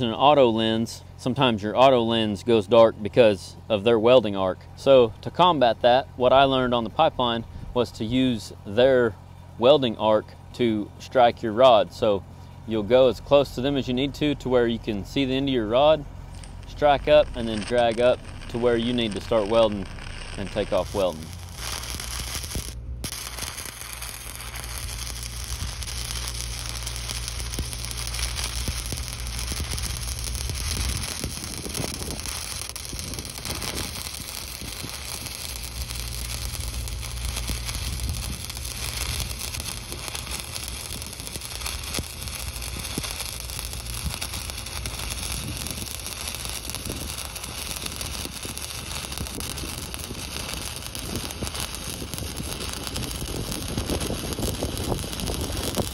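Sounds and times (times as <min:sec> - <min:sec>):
welding arc crackling: 0:15.0 - 0:55.9.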